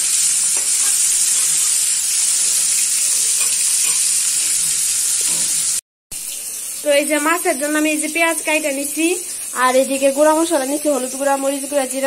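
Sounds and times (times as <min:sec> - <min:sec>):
fish sizzling in hot oil: 0:00.0 - 0:12.0
metal spatula scraping and tapping: 0:00.5 - 0:01.8, 0:02.5 - 0:05.6.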